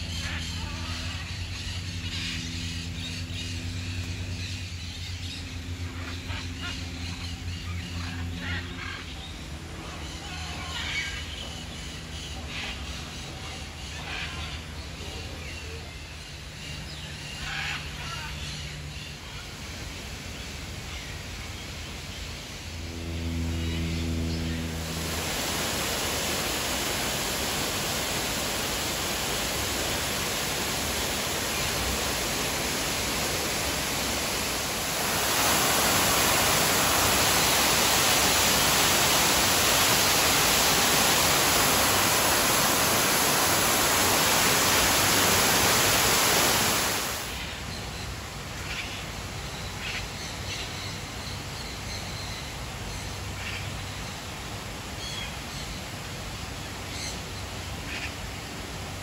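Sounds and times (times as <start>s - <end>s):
waterfall rushing: 24.8s - 47.8s.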